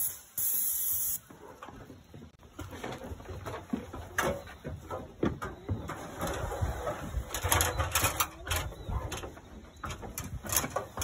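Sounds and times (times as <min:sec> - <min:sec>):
paint sprayer hissing: 0:00.0 - 0:01.2.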